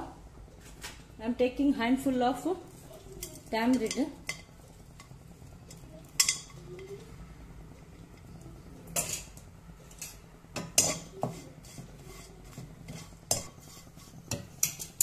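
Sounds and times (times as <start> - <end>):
spatula scraping pan: 8.9 - 15.0.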